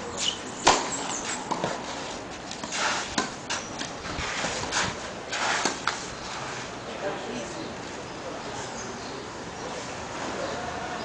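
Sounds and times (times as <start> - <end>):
tennis ball struck by racket: 0.2 - 1.8
shoes sliding on clay: 1.0 - 6.8.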